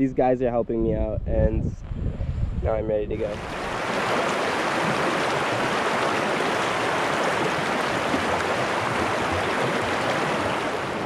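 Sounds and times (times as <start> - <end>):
river rushing over rocks: 3.4 - 11.0.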